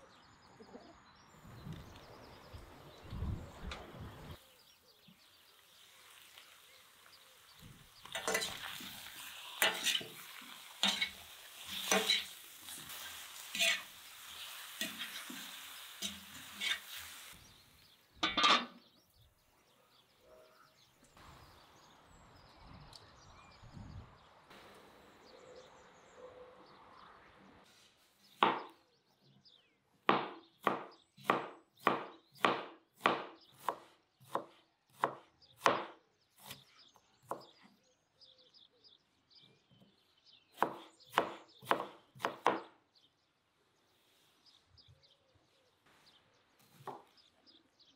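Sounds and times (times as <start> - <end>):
meat sizzling in a pan: 5.6 - 17.4.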